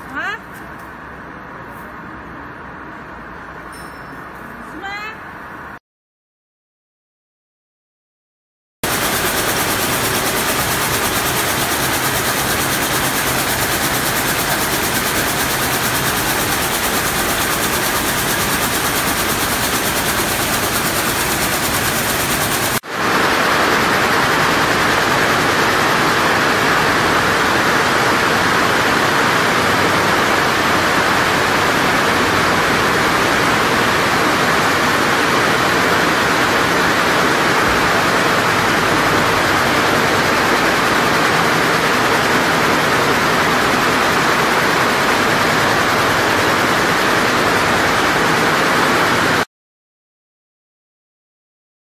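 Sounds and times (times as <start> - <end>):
weaving looms rattling: 8.8 - 49.4.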